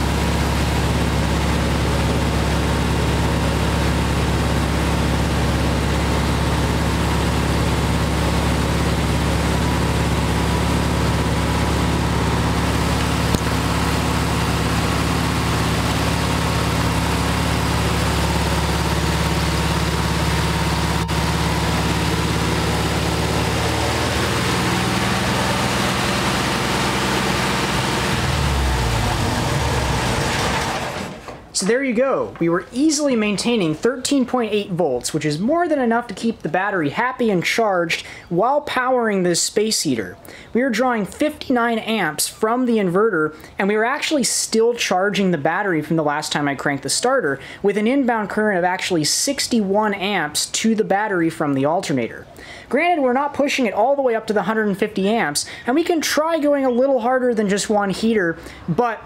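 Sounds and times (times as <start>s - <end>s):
air-cooled engine idling: 0.0s - 31.3s, 47.4s - 47.7s, 53.4s - 55.8s, 57.7s - 59.0s.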